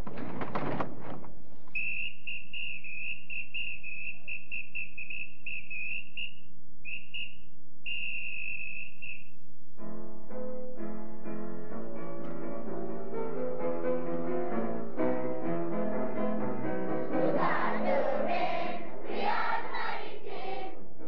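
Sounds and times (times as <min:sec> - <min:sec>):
high whistling tone: 0:01.7 - 0:09.4.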